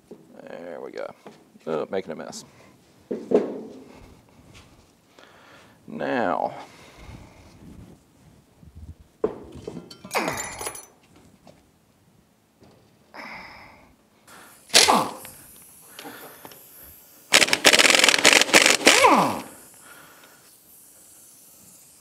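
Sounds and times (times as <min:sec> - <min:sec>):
air impact wrench hammering: 0:14.5 - 0:19.8.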